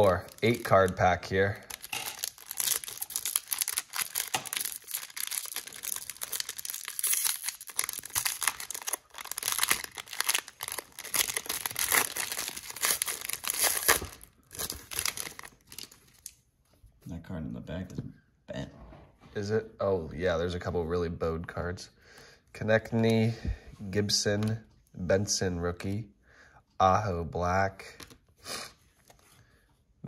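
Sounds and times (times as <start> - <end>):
foil wrapper crinkling: 0.0 - 16.3.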